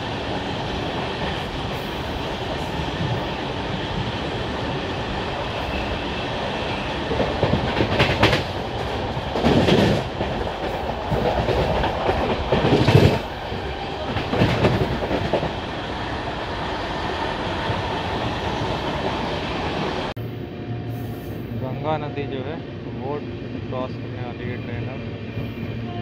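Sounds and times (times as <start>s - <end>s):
train wheels clattering on rails: 7.0s - 15.6s.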